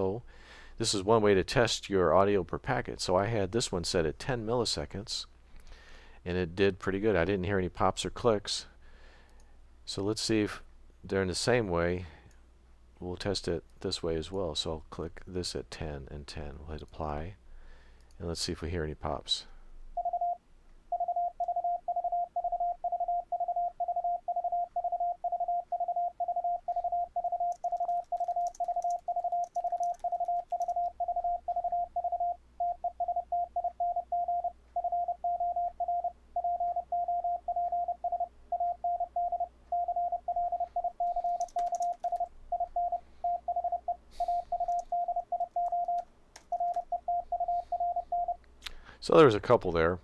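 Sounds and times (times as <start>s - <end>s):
morse code tone: 20.0s - 48.4s.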